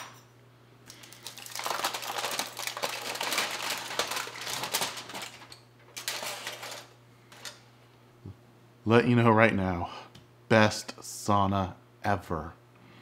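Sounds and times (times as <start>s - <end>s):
aluminum foil crinkling: 0.9s - 7.6s.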